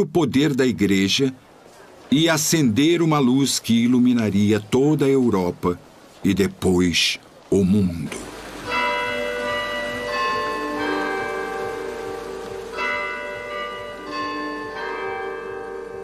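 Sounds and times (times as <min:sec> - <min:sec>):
church bells ringing: 0:08.6 - 0:16.0.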